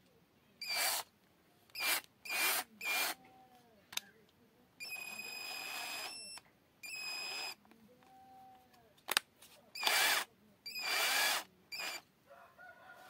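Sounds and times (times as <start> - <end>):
cordless drill whirring: 0.6 - 1.1, 1.7 - 3.2, 4.8 - 7.6, 9.8 - 12.0.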